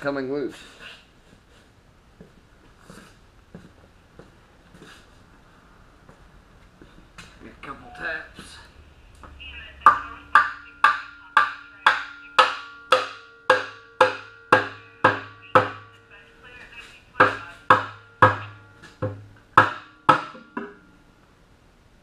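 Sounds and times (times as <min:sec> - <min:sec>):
hammer striking metal: 0:09.2 - 0:16.0, 0:17.2 - 0:21.0.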